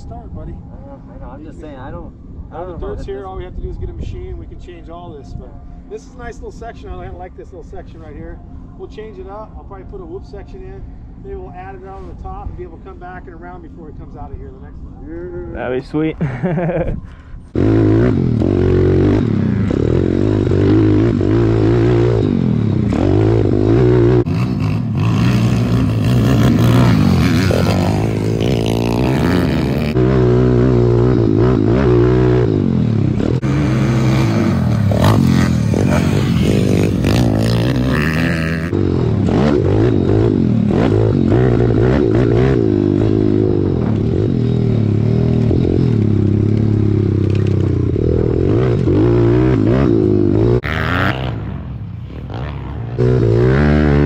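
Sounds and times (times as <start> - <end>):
motorbike engine revving: 17.5 - 54.0.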